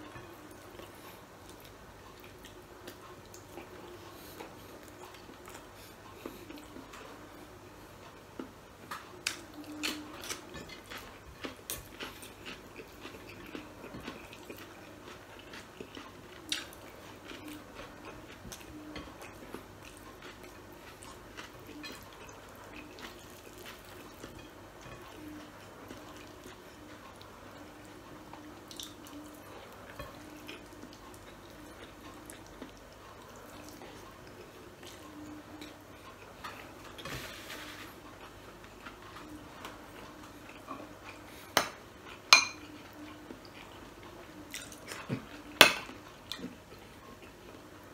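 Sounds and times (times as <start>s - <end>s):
close chewing and mouth sounds: 0.0s - 47.9s.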